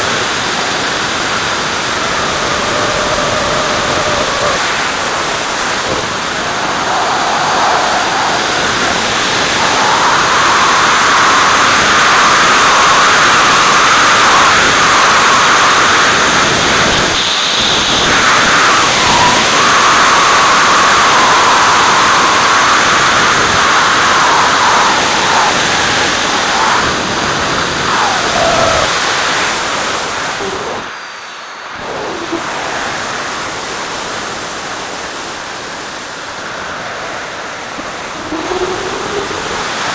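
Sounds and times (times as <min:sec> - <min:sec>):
airflow rushing over camera: 0:00.0 - 0:13.0, 0:20.5 - 0:30.9.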